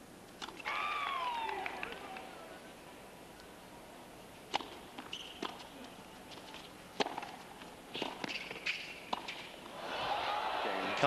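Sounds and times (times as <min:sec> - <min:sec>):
racket striking tennis ball: 0:04.5 - 0:05.7, 0:06.3 - 0:09.6.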